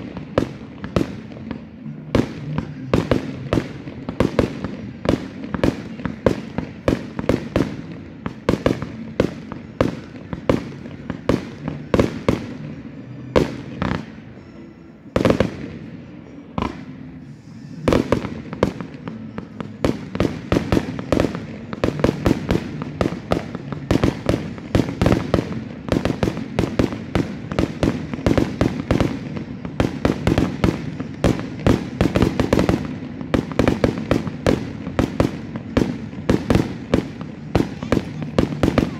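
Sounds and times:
fireworks bangs: 0.0s - 38.9s.

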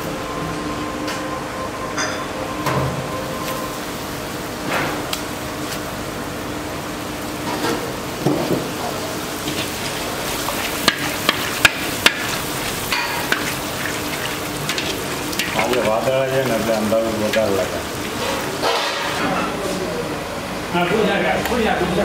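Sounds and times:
oil sizzling: 6.8s - 19.2s
metal ladle knocking on pan: 10.8s - 13.5s.

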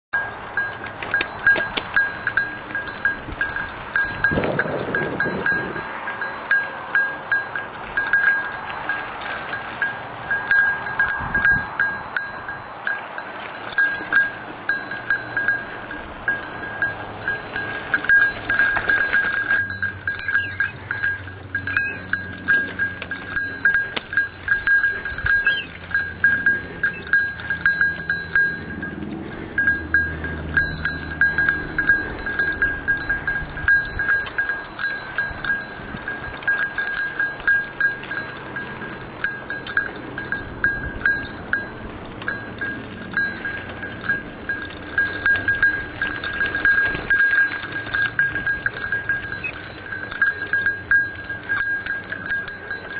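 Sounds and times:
low rumble of riding: 0.0s - 52.9s
small bell jingling: 0.2s - 52.9s.

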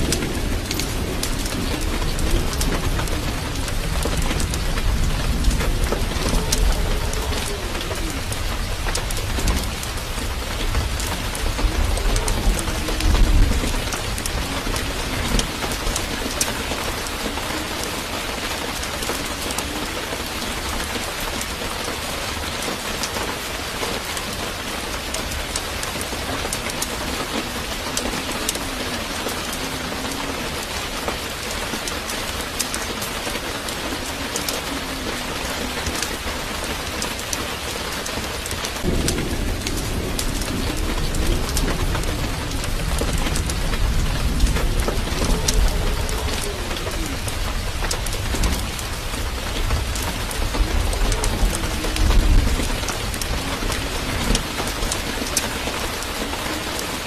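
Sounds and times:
low rumble: 38.8s - 54.9s.

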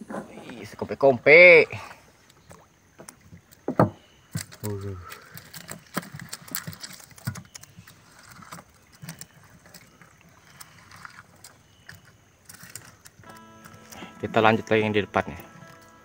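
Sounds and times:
hands sorting shrimp rustling: 4.4s - 16.0s.

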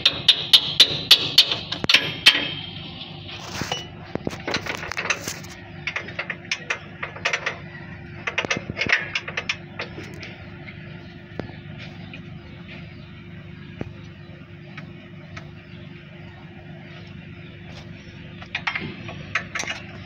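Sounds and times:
hammer strikes on metal: 0.0s - 2.7s.

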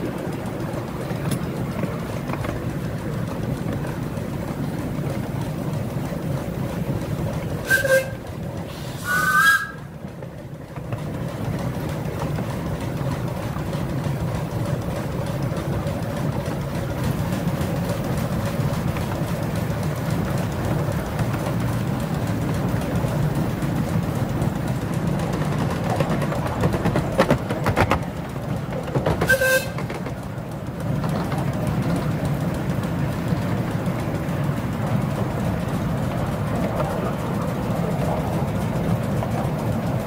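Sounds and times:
miniature steam train running: 0.0s - 40.0s
steam train whistle toots: 7.6s - 9.9s, 29.2s - 29.9s.

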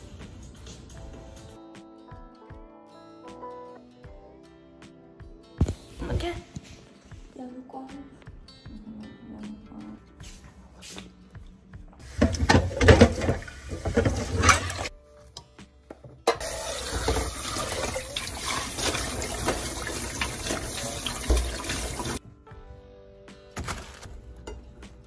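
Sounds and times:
tap water running into a sink: 12.0s - 14.9s, 16.3s - 22.2s.

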